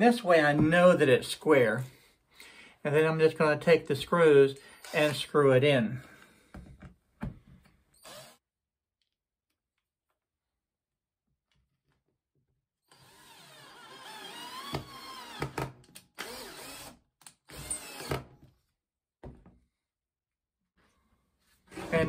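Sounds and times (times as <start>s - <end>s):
cordless drill driving screw: 8.0s - 8.4s, 12.9s - 18.3s.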